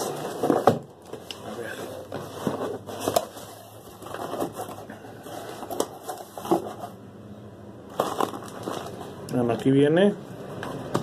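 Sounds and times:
cardboard rustling and scraping: 0.0 - 7.0, 7.9 - 9.2.

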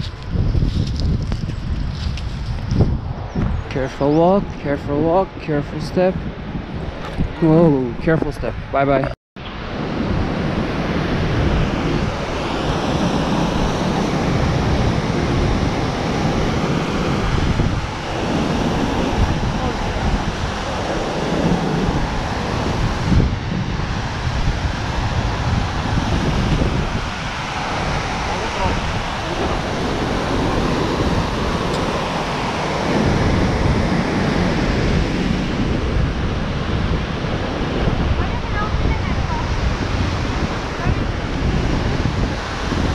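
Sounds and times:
river rushing over boulders: 15.8 - 34.8.

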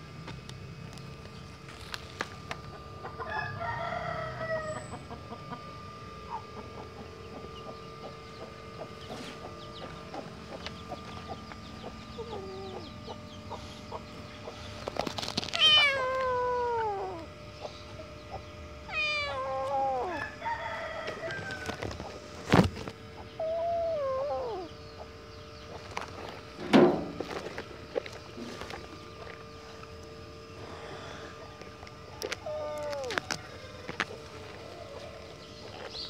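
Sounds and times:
kitten meowing: 15.6 - 17.3, 18.9 - 20.2, 23.4 - 24.7, 32.4 - 33.4.

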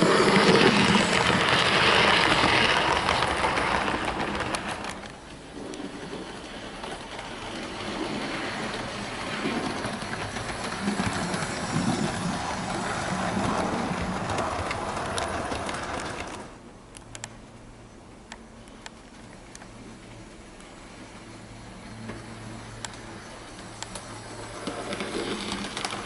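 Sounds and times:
model train wheels clattering: 0.0 - 17.3, 22.0 - 26.0
scattered clicks: 8.6 - 17.4, 18.3 - 19.7, 22.8 - 26.0.

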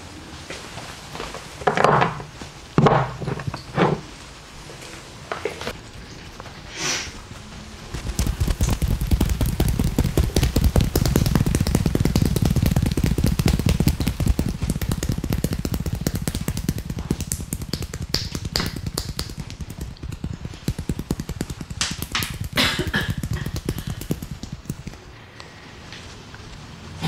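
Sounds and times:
hands slapping massage: 7.9 - 25.1.

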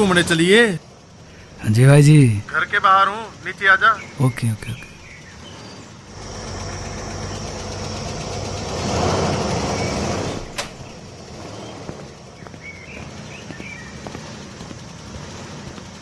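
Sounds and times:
vehicle engine passing by: 5.4 - 16.0.

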